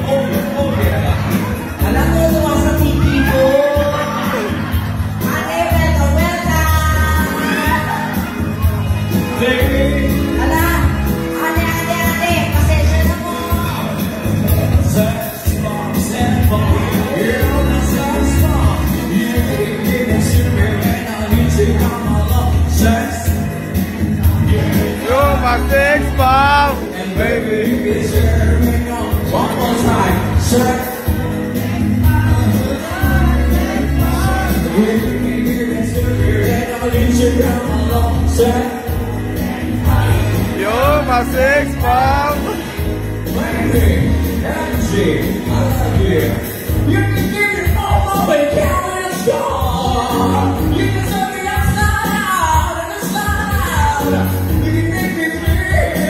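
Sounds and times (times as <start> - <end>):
pop backing track with bass beat: 0.0 - 56.0
woman singing karaoke: 5.2 - 8.4, 10.3 - 13.8.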